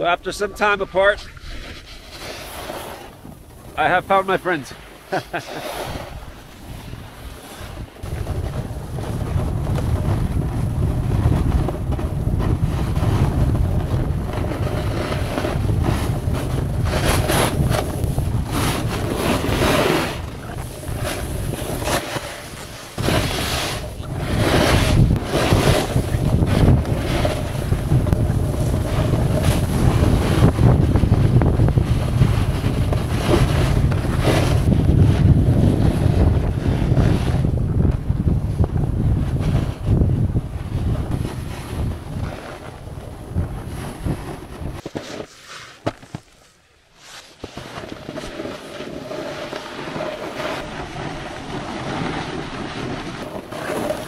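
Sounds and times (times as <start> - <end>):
skis sliding on snow: 0.0 - 54.0
wind buffeting microphone: 5.2 - 44.9.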